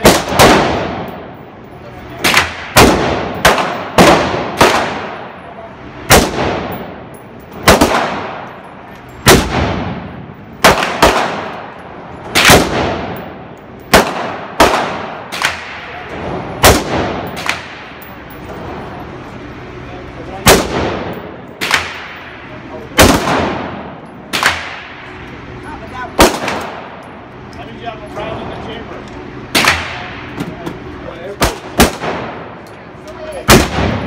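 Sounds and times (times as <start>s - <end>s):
rifle shots with echo: 0.0s - 1.4s, 2.2s - 5.4s, 6.1s - 8.5s, 9.2s - 18.0s, 20.4s - 25.1s, 26.2s - 27.0s, 29.5s - 30.4s, 31.4s - 32.6s, 33.5s - 34.0s.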